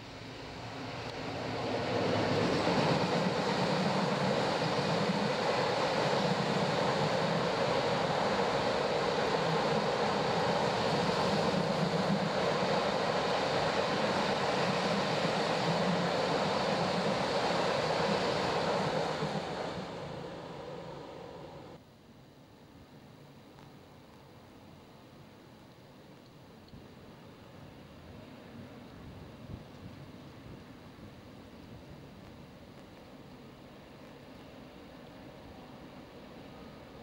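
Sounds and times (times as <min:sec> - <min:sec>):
freight train wheels rumbling on rail: 0:00.0 - 0:21.8.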